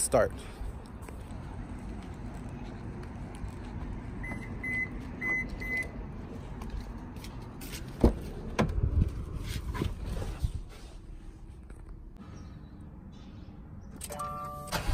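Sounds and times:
outdoor background noise: 0.0 - 14.9
footsteps on asphalt: 0.3 - 9.7.

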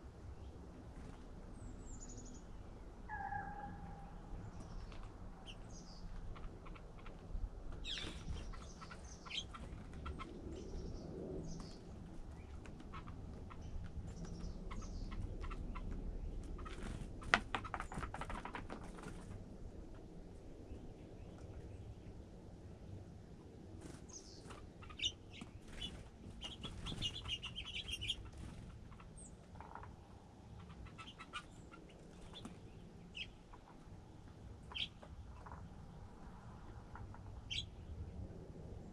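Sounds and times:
songbirds chirping: 0.0 - 38.9
wing flutters: 6.1 - 19.4, 23.7 - 29.9.

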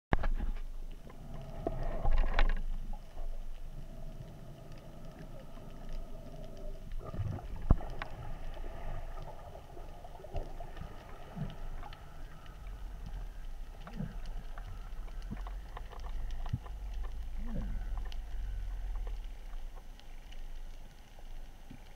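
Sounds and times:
faint steady hum: 0.2 - 21.9
muffled underwater rumble: 0.2 - 21.9
small clicks: 10.3 - 21.9.

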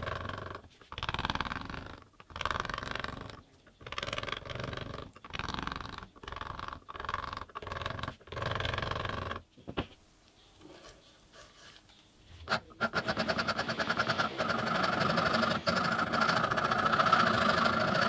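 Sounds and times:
chisel scraping wood: 10.7 - 18.0.

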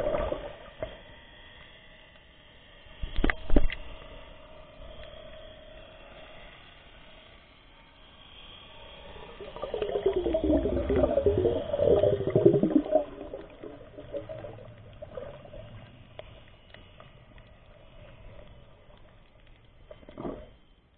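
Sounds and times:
underwater bubbling: 0.0 - 1.0, 9.0 - 20.8.

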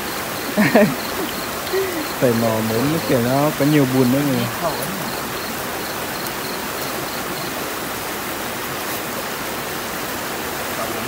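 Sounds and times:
stream water rushing: 0.0 - 11.0.

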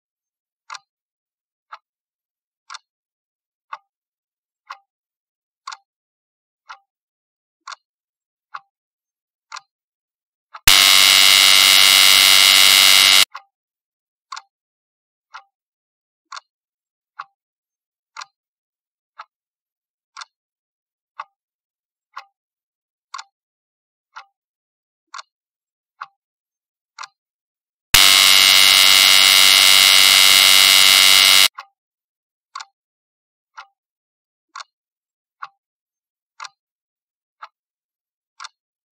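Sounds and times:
loud buzzer: 10.7 - 13.3, 28.0 - 31.5.

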